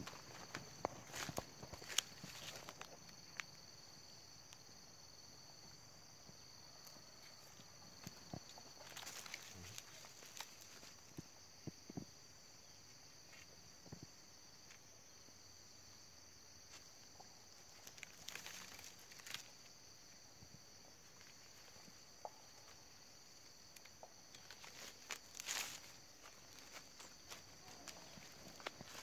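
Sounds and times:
rustle of stalks being stepped on: 0.0s - 3.5s, 7.2s - 11.1s, 17.7s - 19.7s, 23.8s - 29.0s
high insect chorus: 0.0s - 29.0s.

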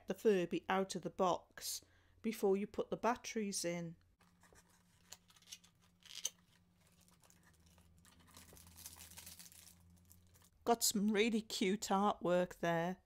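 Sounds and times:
tissue paper rustling: 6.7s - 10.5s.

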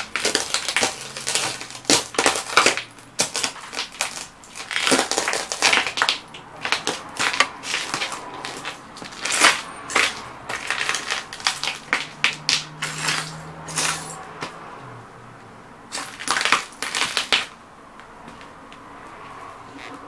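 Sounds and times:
boots stomping on concrete: 0.0s - 14.6s
glass and metal crunching: 0.0s - 14.6s, 15.9s - 17.6s.

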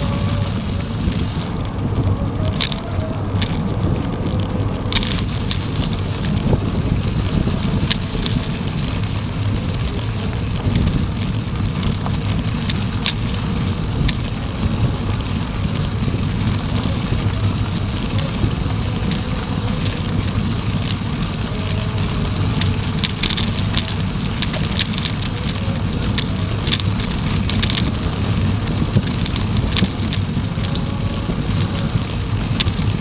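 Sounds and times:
wind buffeting microphone: 0.0s - 33.0s.

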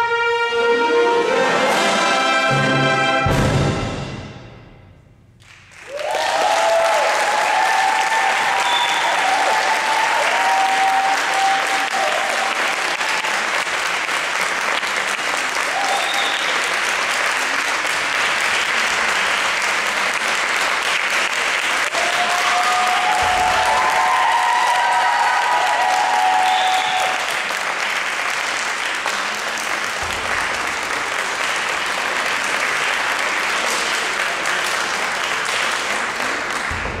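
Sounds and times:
audience applauding: 5.4s - 37.0s
voices cheering: 5.8s - 13.6s, 15.6s - 16.8s, 21.8s - 27.7s.

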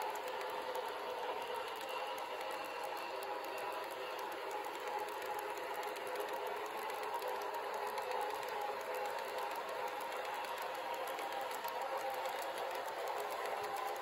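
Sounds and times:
faint irregular ticking: 0.0s - 14.0s
model train wheels whirring: 0.0s - 14.0s.

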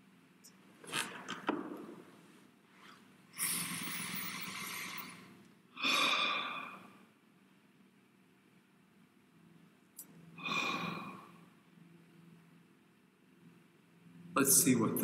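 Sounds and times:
man breathing in deeply: 3.4s - 7.0s, 10.4s - 11.4s.

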